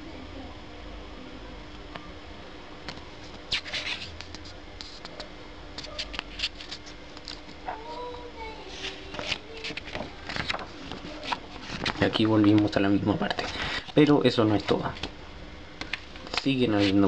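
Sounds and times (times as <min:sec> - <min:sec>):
faint steady hum: 0:00.0 - 0:17.0
paper crackling and rustling: 0:03.2 - 0:08.1, 0:08.7 - 0:13.9, 0:15.8 - 0:17.0.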